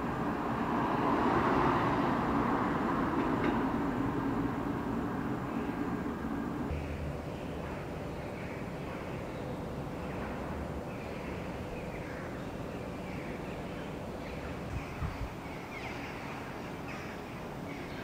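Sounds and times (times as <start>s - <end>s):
distant traffic rumble: 0.0s - 18.0s
birds calling: 6.7s - 18.0s.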